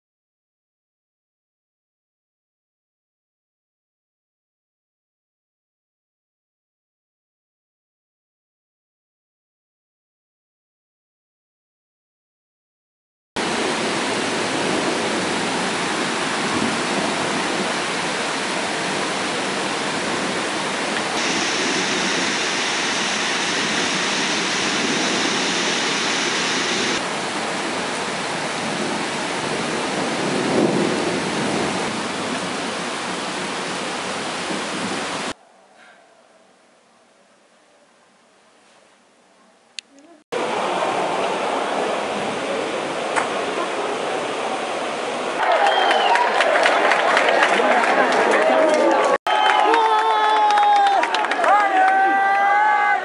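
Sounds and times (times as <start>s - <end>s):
heavy rain pouring: 13.4s - 35.4s, 40.4s - 49.1s.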